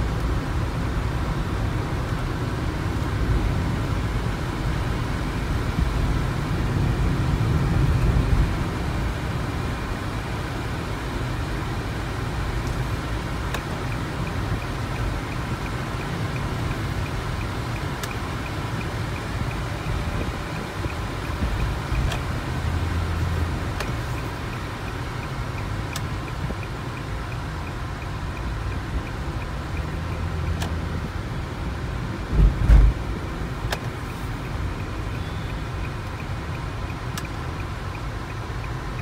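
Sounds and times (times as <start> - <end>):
car engine and tyre noise: 0.0 - 39.0
faint regular ticking: 9.7 - 39.0.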